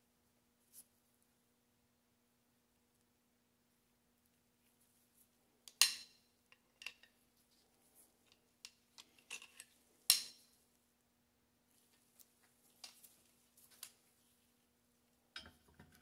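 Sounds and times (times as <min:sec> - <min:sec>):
metal parts clinking: 0:09.0 - 0:10.4.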